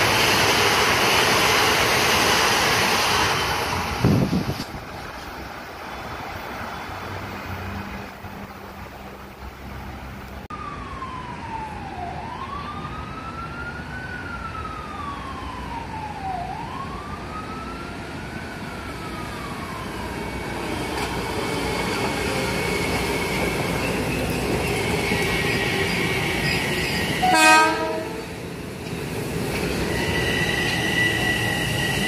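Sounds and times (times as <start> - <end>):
electric train whine: 0.0 - 11.8, 17.0 - 32.0
emergency siren wailing: 10.5 - 28.8.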